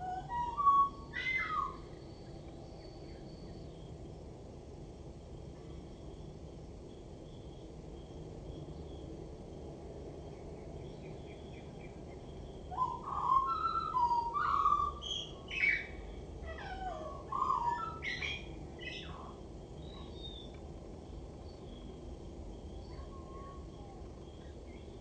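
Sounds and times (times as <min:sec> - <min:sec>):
blackbird singing: 0:00.0 - 0:02.2, 0:10.9 - 0:20.5.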